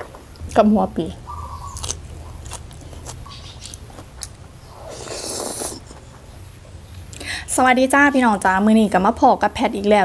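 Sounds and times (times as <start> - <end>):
wet chewing with clicks: 1.4 - 4.4
noisy slurp of noodles: 4.8 - 5.9.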